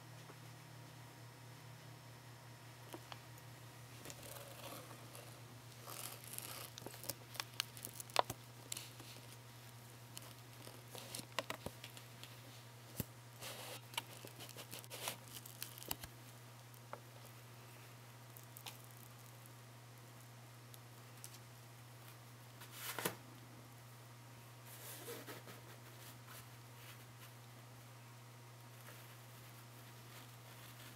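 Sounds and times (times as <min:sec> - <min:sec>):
low steady hum: 0:00.0 - 0:30.9
fabric rustling and scratching: 0:04.0 - 0:08.1.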